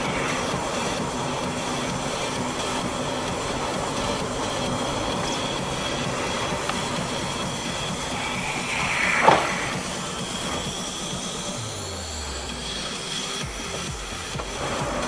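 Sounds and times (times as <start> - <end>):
vehicle travel rumble: 0.0 - 15.0
sharp loud sound: 8.0 - 10.8.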